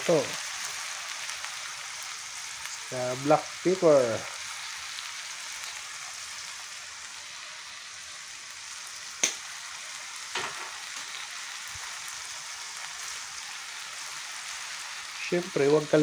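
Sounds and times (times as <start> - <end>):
frying sizzle: 0.0 - 16.0
sharp tap: 9.2 - 9.4.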